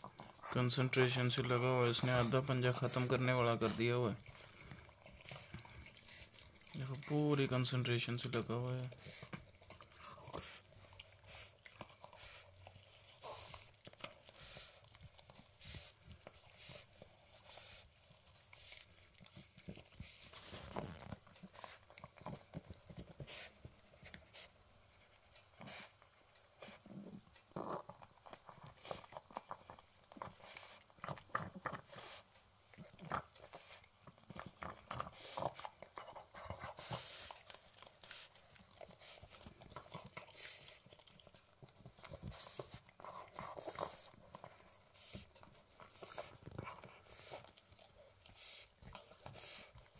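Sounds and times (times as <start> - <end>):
puppy chewing bone: 0.0 - 49.9.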